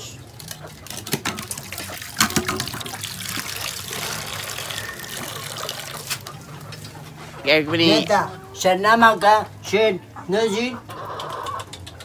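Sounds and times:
juice splashing into metal pan: 0:00.8 - 0:06.3.

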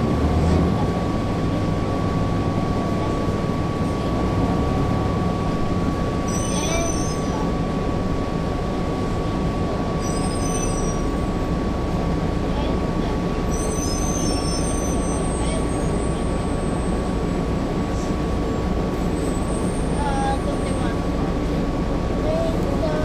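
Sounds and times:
bus diesel engine rumbling: 0:00.0 - 0:23.0
brief squeals: 0:06.3 - 0:07.4, 0:10.0 - 0:11.2, 0:13.5 - 0:17.0.

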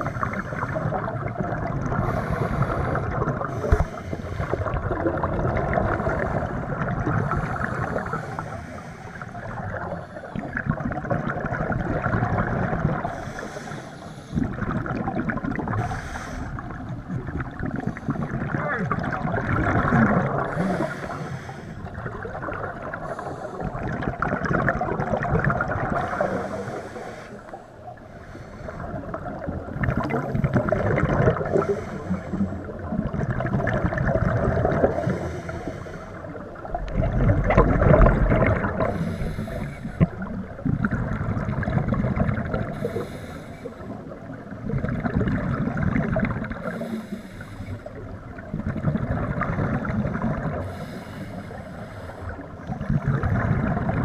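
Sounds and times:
exhaled bubbles gurgling: 0:00.0 - 0:54.0
regulator breath hissing: 0:38.9 - 0:40.1, 0:42.7 - 0:43.9, 0:46.7 - 0:47.9, 0:50.7 - 0:52.4.

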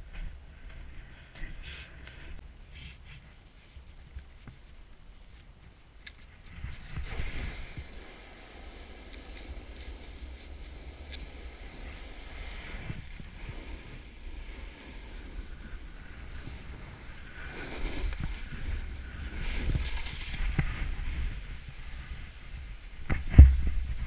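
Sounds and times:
snowboard scraping over snow: 0:06.3 - 0:24.0
wind buffeting microphone: 0:06.3 - 0:24.0.

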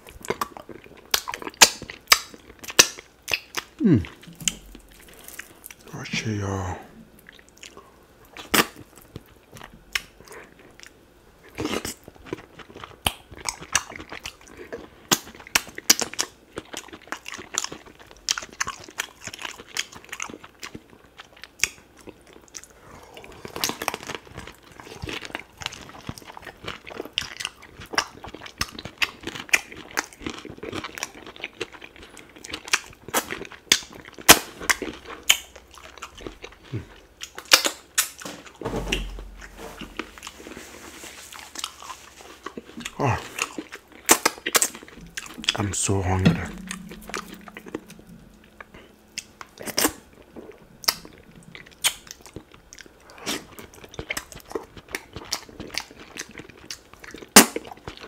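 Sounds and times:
wet chewing and lip smacks: 0:00.1 - 0:05.9, 0:07.2 - 0:22.7, 0:23.5 - 0:38.2, 0:48.6 - 0:58.0.

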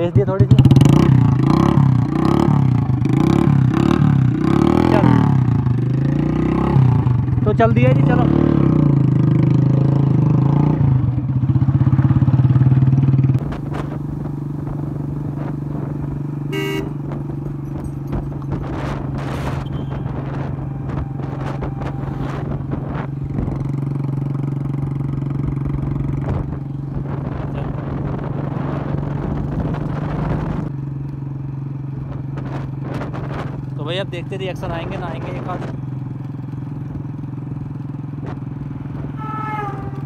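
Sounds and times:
motorcycle engine cruising: 0:00.0 - 0:40.0
motorcycle horn beep: 0:16.4 - 0:17.1, 0:19.6 - 0:22.4, 0:39.2 - 0:40.0.

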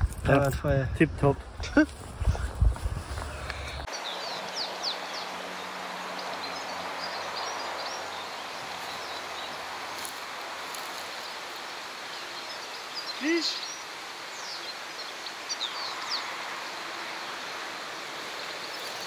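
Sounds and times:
birds chirping: 0:01.1 - 0:19.0
steady rushing water: 0:03.8 - 0:19.0.

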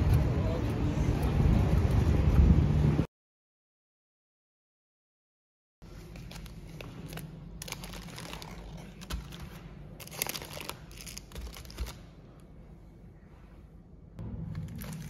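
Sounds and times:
crinkly packaging crumpled: 0:05.9 - 0:12.0.

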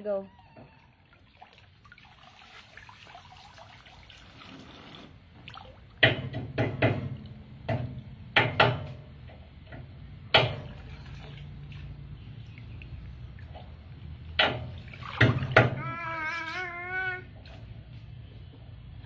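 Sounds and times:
running water: 0:00.0 - 0:09.0, 0:09.6 - 0:17.8
water splashes from slapping: 0:00.8 - 0:08.9, 0:10.3 - 0:16.0.

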